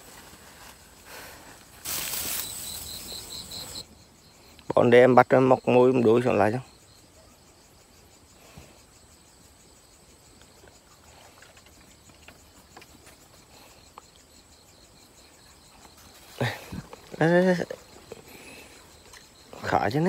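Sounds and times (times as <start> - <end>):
hands rustling dry grass: 0.0 - 3.8
crickets chirping: 0.0 - 20.0.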